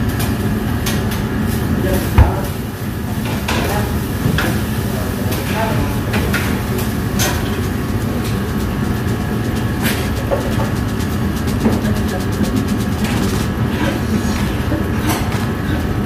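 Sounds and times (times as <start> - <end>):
fast clicks: 6.1 - 14.0.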